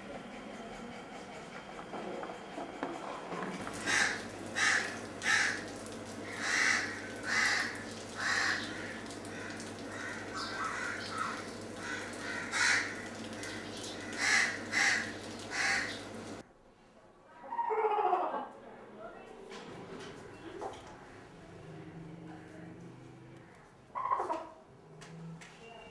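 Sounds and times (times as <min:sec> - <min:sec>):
crows cawing: 0:03.7 - 0:16.0.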